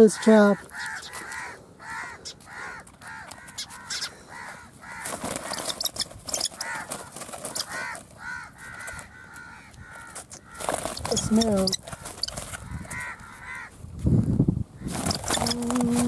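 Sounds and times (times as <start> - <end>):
harsh caw-like bird calls: 0.0 - 13.8
bird wings flapping on wire cage: 5.0 - 8.0, 10.6 - 12.7, 14.9 - 16.0.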